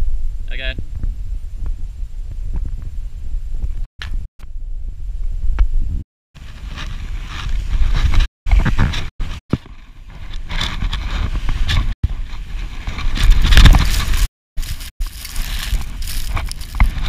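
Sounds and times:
wind rumble on microphone: 0.0s - 17.0s
skis scraping through snow: 10.5s - 17.0s.

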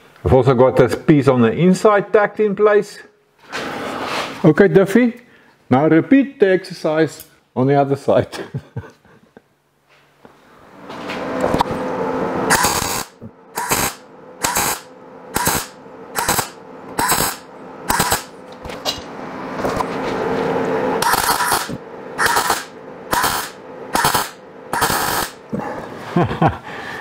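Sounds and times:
short bursts of welding: 12.5s - 18.3s, 21.0s - 25.4s.

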